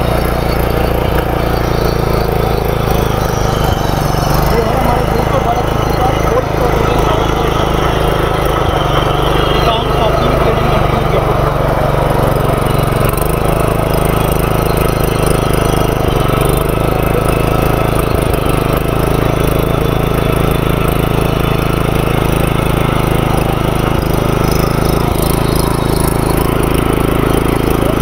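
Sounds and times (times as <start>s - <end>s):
tiller engine running: 0.0s - 28.0s
tines churning soil: 0.0s - 28.0s.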